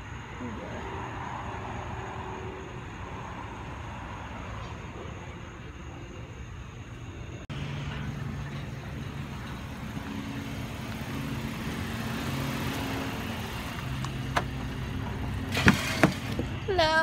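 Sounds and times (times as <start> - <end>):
car engine idling: 4.9 - 17.0.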